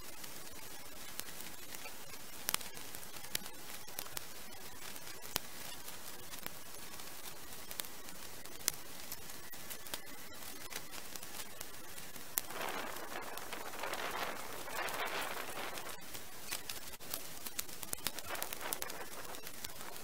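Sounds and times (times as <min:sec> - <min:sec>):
steady hiss: 0:00.0 - 0:20.0
loud rustling: 0:12.4 - 0:16.2
dry twigs snapping: 0:12.4 - 0:20.0.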